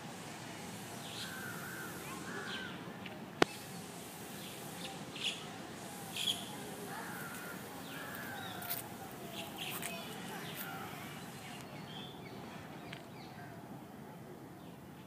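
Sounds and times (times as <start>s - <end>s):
background noise: 0.0s - 15.0s
birds calling: 1.0s - 2.8s, 3.4s - 13.6s.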